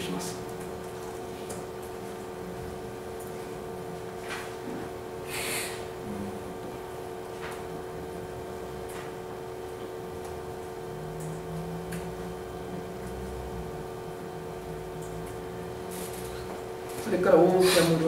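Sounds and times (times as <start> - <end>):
steady hum: 0.0 - 18.0
short breathy hiss: 5.3 - 5.8.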